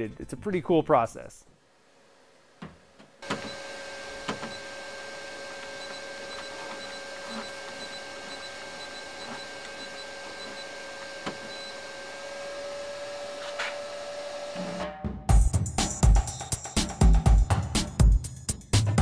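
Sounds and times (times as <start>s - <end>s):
printer humming two-tone whine: 3.2s - 14.8s.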